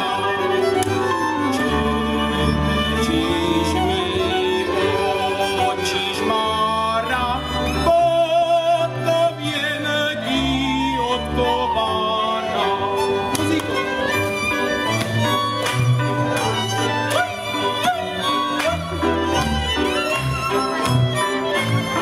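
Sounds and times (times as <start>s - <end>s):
folk band of strings and cimbalom: 0.0s - 22.0s
man singing folk song: 1.3s - 14.2s.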